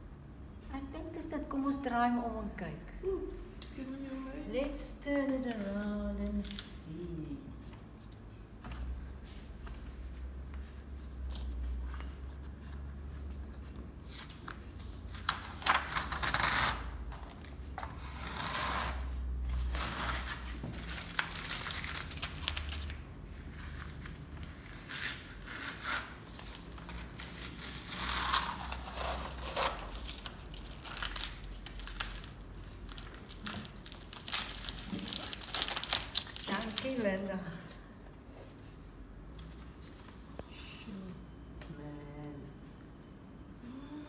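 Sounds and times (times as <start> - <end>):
low steady hum: 0.0 - 44.0
masking tape peeling and crumpling: 12.4 - 37.3.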